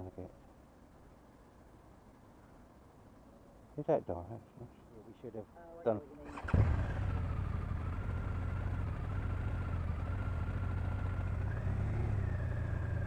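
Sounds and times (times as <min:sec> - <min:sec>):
motorcycle engine running: 0:06.4 - 0:13.0.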